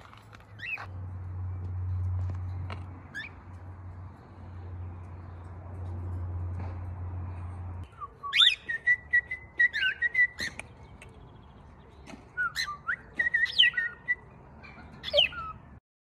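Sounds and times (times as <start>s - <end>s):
cockatiel whistling: 7.9s - 10.6s, 12.4s - 14.2s.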